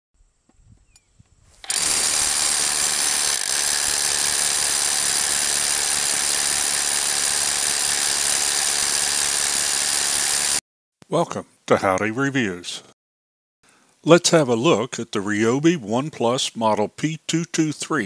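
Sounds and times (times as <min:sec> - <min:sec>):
rotary hammer drilling into stone: 0:01.6 - 0:10.6.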